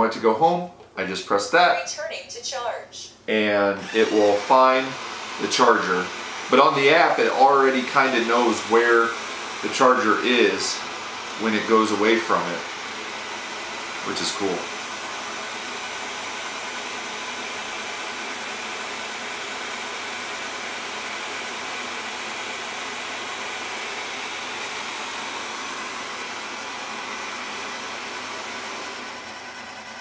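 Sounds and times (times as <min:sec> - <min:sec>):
robot vacuum whirring: 0:03.8 - 0:18.8.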